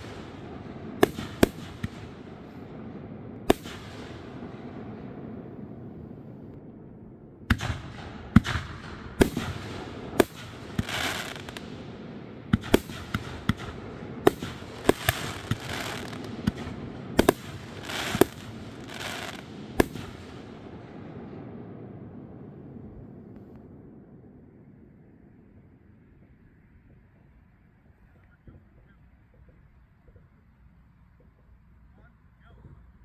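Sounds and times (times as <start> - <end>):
fireworks crackling hiss: 0.0 - 6.5, 7.5 - 21.0
fireworks bangs: 0.0 - 6.8, 7.4 - 23.9.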